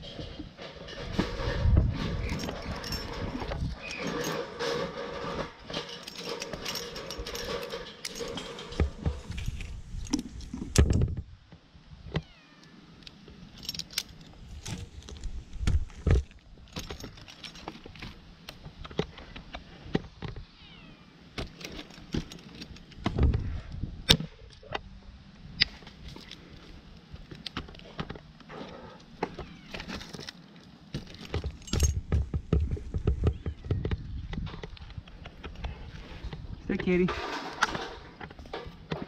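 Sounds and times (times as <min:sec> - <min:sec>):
climbing gear clinking: 0:00.0 - 0:11.0, 0:13.0 - 0:18.2, 0:21.4 - 0:23.1, 0:29.0 - 0:33.6.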